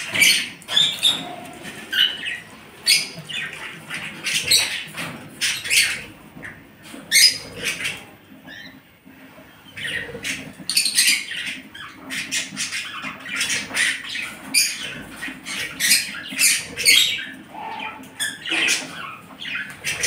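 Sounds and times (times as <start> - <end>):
nestling birds begging calls: 0.0 - 8.8, 9.6 - 20.0.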